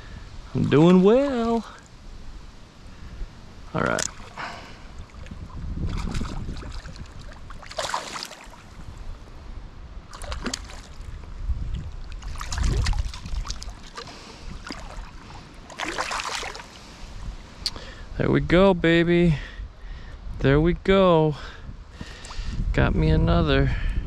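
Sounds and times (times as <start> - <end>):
fish splashing in water: 4.0 - 8.8, 10.1 - 11.2, 12.1 - 16.8.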